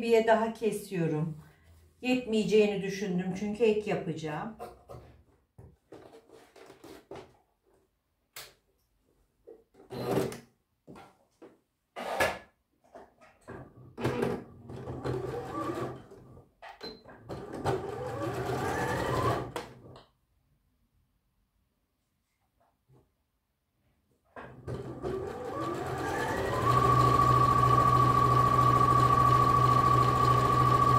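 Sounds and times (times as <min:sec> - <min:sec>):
sewing machine stitching: 0:14.0 - 0:19.8, 0:24.4 - 0:30.9.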